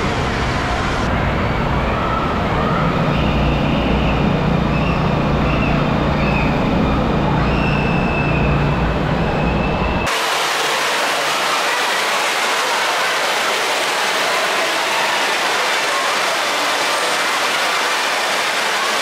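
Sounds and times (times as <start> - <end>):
rushing water: 10.1 - 19.0.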